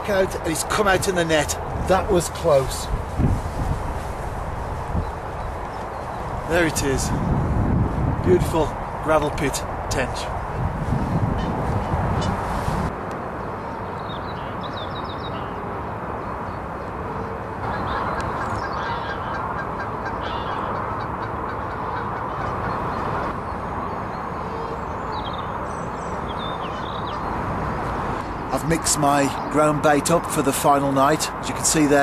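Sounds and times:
coots honking: 17.6 - 23.4.

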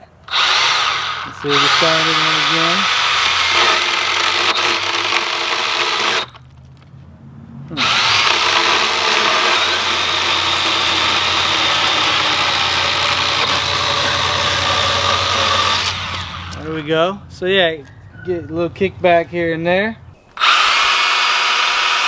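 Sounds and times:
pruning saw cutting branch: 0.0 - 6.5, 7.7 - 16.8, 20.4 - 22.0.

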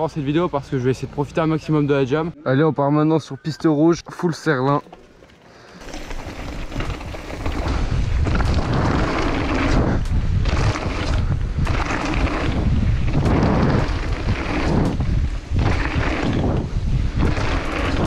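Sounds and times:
tyre rumble on dirt: 4.8 - 18.0
wind on microphone: 6.4 - 18.0.

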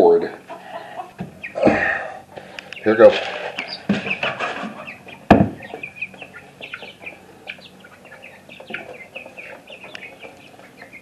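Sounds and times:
chicks clucking and peeping: 0.0 - 11.0
loud knock: 5.3 - 5.6.

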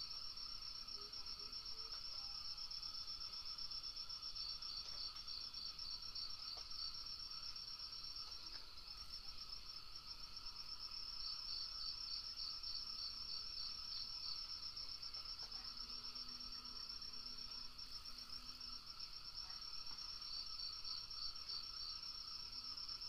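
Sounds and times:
crickets chirping: 0.0 - 23.0.

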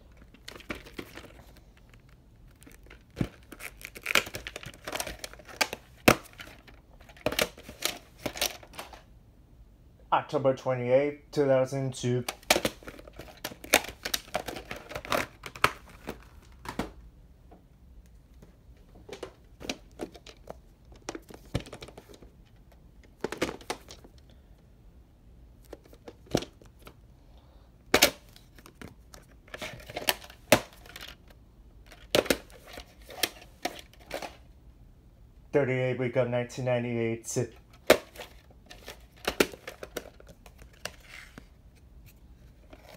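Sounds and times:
plastic cases clicking and knocking: 0.2 - 9.0, 12.2 - 17.0, 18.9 - 24.2, 25.6 - 27.0, 28.0 - 34.4, 37.5 - 41.5.

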